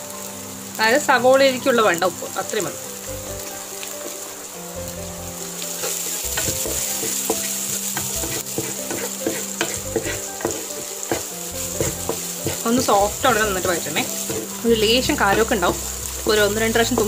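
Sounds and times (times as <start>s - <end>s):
onions sizzling in oil: 0.0s - 17.0s
spatula scraping and tapping pan: 5.7s - 17.0s.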